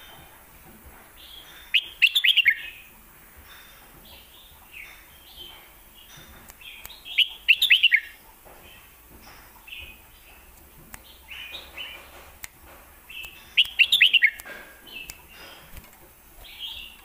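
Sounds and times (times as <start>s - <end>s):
bulbul warbling song: 1.2s - 2.9s, 4.1s - 8.2s, 13.1s - 15.4s.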